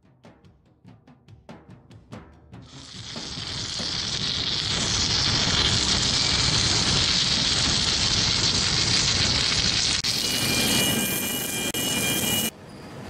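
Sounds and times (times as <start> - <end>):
welding crackling hiss: 2.6 - 12.5
gas torch flame with whining tones: 2.7 - 12.5.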